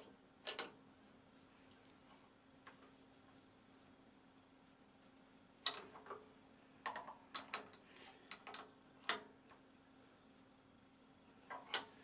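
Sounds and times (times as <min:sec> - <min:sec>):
spanner clicking on metal nut: 0:05.6 - 0:06.2, 0:06.8 - 0:09.3.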